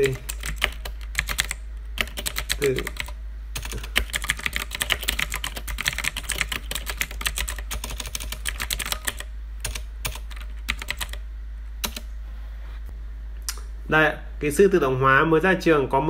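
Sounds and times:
typing on computer keyboard: 0:00.0 - 0:11.2, 0:11.8 - 0:12.1.

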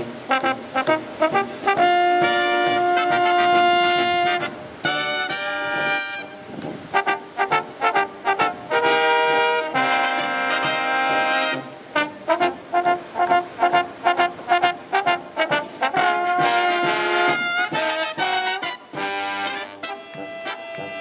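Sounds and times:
marching brass band playing: 0:00.0 - 0:21.0
snare drum: 0:14.6 - 0:21.0.

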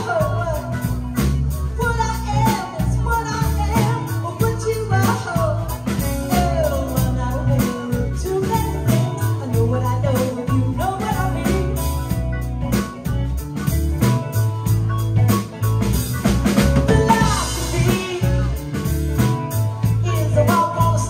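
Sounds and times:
woman singing: 0:00.0 - 0:12.4, 0:16.8 - 0:21.0
drum kit: 0:00.0 - 0:21.0
electric bass: 0:00.0 - 0:21.0
electric guitar: 0:00.0 - 0:21.0.

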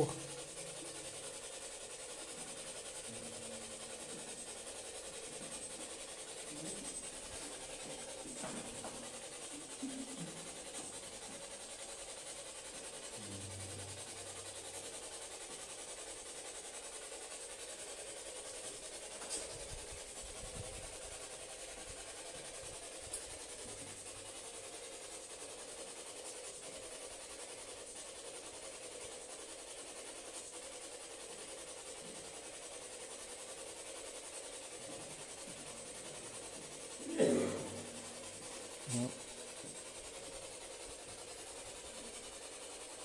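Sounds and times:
faint hum: 0:00.0 - 0:01.2, 0:13.1 - 0:14.5
microphone hiss: 0:00.0 - 0:43.0.

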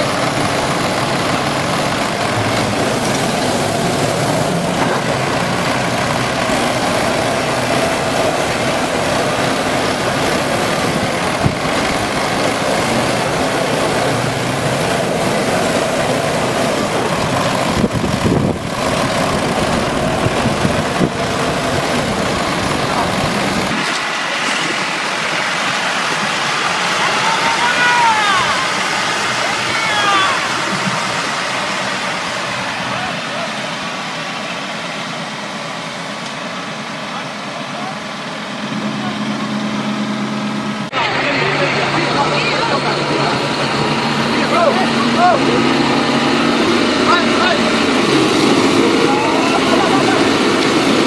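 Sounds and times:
dense rushing noise: 0:00.0 - 0:51.0
tractor diesel engines under load: 0:00.0 - 0:51.0.

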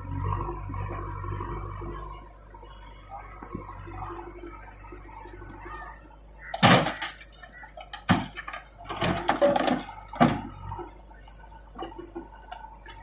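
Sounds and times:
diesel engines running: 0:00.0 - 0:13.0
stones dropping into trolley: 0:06.5 - 0:10.7.

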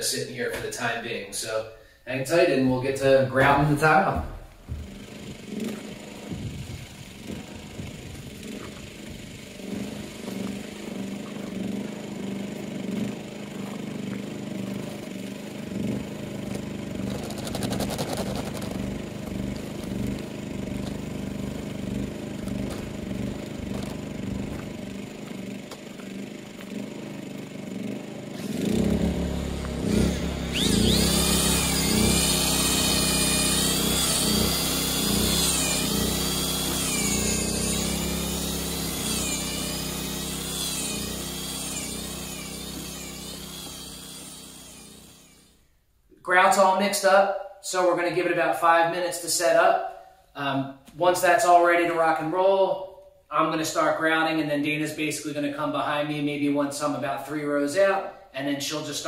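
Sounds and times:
drill motor whine mixing grout: 0:02.8 - 0:45.6
portable generator running: 0:03.0 - 0:45.6.

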